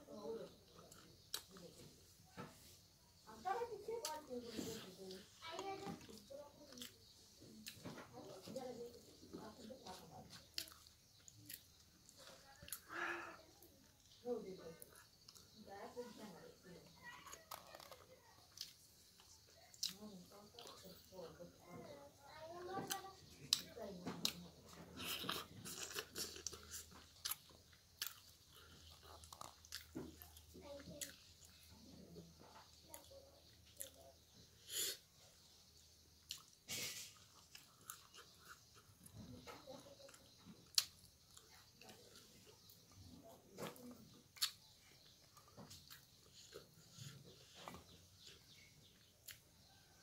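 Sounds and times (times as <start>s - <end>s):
person chewing crunchy food: 5.0s - 7.8s, 9.8s - 14.2s, 17.2s - 21.0s, 22.9s - 31.8s, 32.6s - 49.8s.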